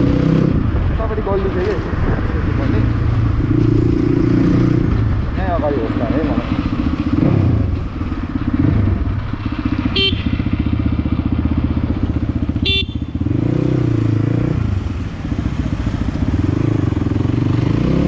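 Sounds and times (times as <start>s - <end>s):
horn beeps: 9.9s - 10.4s, 12.6s - 13.2s.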